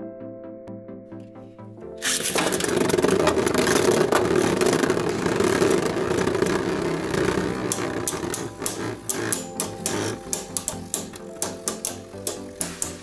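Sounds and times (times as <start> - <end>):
spinning tops whirring: 2.0 - 13.0
tops clicking together: 2.0 - 13.0
tops scraping plastic floor: 2.0 - 13.0.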